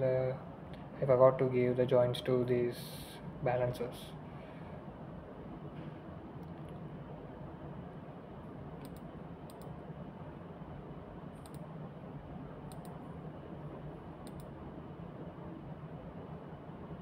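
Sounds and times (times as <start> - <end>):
low hum of room noise: 0.0 - 17.0
computer mouse clicks: 8.8 - 9.8, 11.4 - 11.7, 12.7 - 13.0, 14.2 - 14.5.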